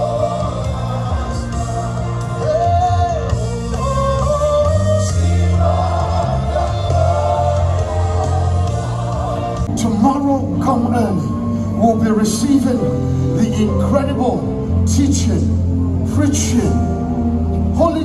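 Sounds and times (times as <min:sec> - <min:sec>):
choir singing gospel music: 0:00.0 - 0:14.1
held bass notes: 0:00.0 - 0:18.0.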